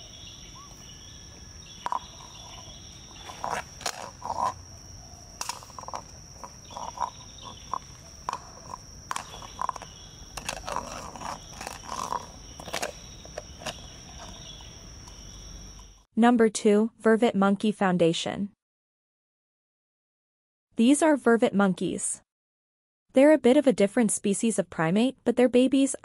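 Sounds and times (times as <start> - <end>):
high insect drone: 0.0 - 16.1
coconut shell scraping on asphalt: 1.4 - 16.0.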